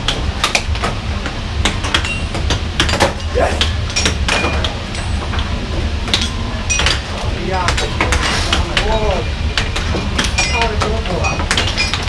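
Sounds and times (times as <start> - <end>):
air hockey puck clacking: 0.0 - 5.5, 6.1 - 12.0
steady low hum: 0.0 - 12.0.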